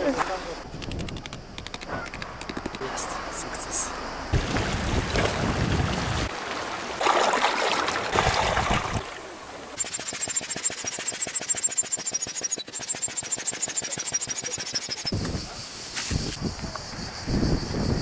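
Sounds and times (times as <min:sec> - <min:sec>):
sea water splashing on rocks: 0:04.3 - 0:09.8.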